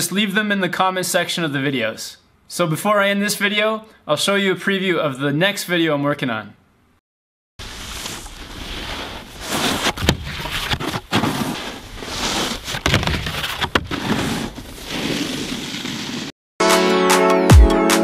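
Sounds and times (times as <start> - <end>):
snowboard scraping over snow: 7.6 - 16.3.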